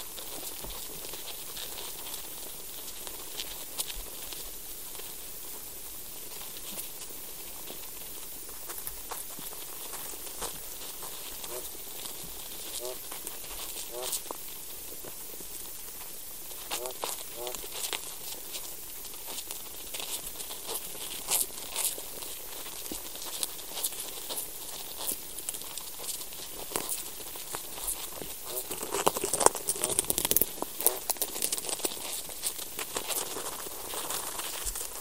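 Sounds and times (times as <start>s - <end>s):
faint hiss: 0.0s - 35.0s
small clicks and crackles in soil: 0.0s - 35.0s.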